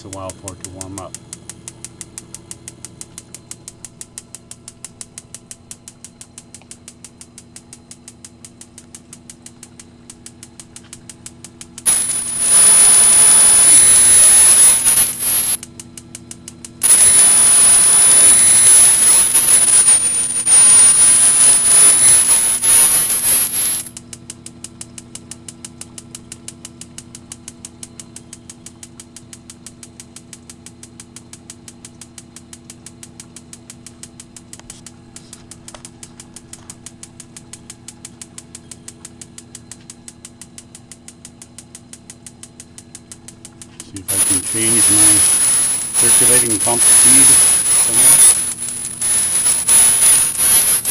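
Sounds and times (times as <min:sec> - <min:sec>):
steady hum: 0:00.0 - 0:50.9
spark igniter clicking: 0:01.2 - 0:24.4, 0:25.4 - 0:50.9
loud gas hiss with whistle: 0:11.9 - 0:15.6, 0:16.8 - 0:23.8, 0:44.1 - 0:50.9.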